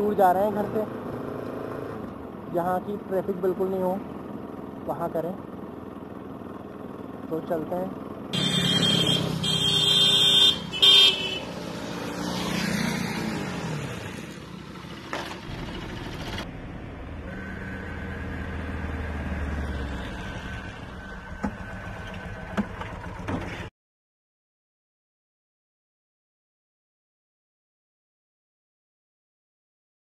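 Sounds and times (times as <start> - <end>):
motorcycle passing: 8.2 - 23.7
vehicle horn honking: 8.3 - 11.6.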